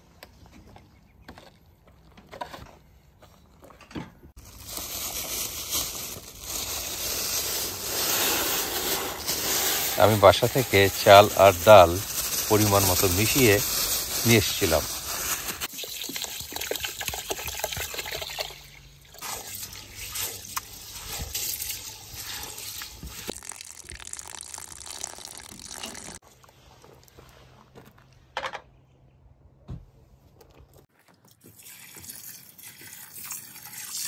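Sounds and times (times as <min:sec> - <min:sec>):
water pouring into a pot: 0:15.6 - 0:26.2, 0:31.4 - 0:34.0.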